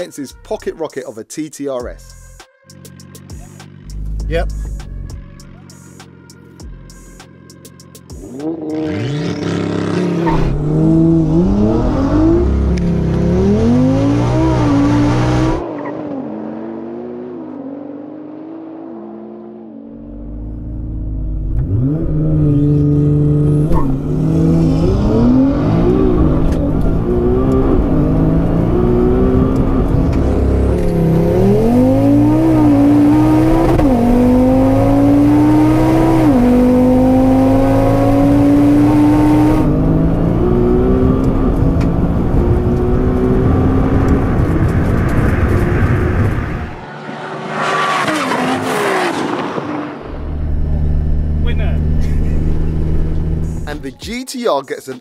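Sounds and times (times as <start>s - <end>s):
car engine at full throttle: 8.1s - 53.9s
car passing at speed: 42.5s - 50.8s.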